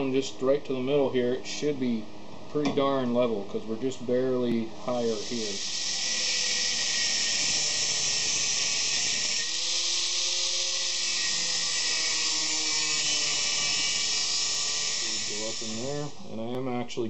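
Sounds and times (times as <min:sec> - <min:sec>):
angle grinder cutting steel: 0:05.2 - 0:16.2.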